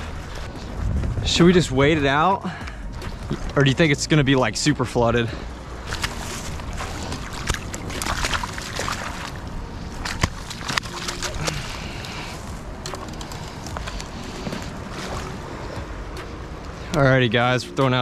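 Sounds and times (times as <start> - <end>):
wind rumble on microphone: 0.0 - 18.0
turbulent river water rushing: 5.8 - 15.7.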